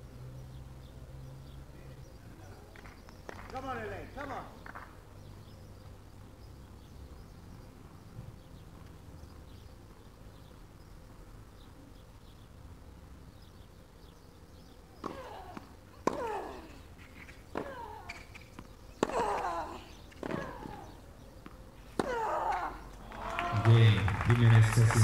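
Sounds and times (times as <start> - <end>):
low court background: 11.6 - 25.0
racket hitting ball: 15.0 - 16.4, 17.2 - 19.4, 20.1 - 21.0, 21.9 - 22.6.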